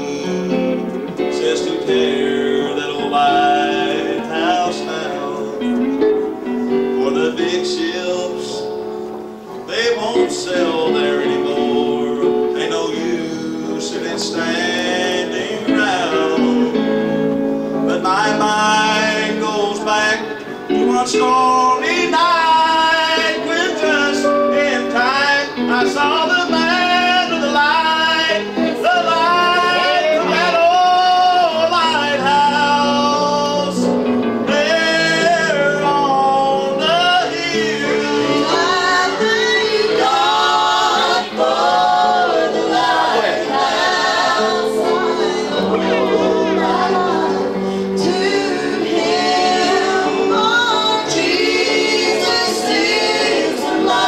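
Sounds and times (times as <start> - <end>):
man singing gospel: 0.0 - 6.1, 7.0 - 8.8, 9.6 - 17.2, 17.8 - 54.0
woman singing: 44.3 - 54.0.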